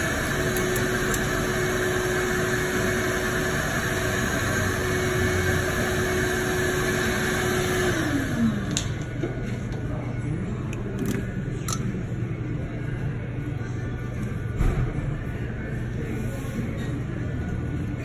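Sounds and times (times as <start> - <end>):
electric blower motor whirring: 0.0 - 9.0.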